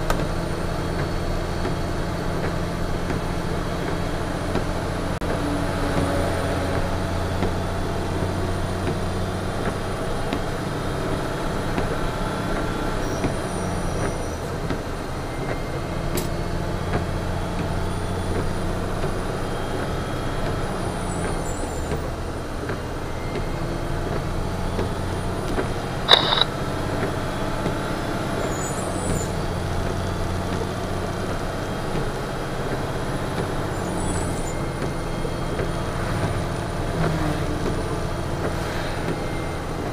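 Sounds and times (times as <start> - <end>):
diesel truck engine drone: 0.0 - 39.9
brief sharp sound: 26.1 - 26.5.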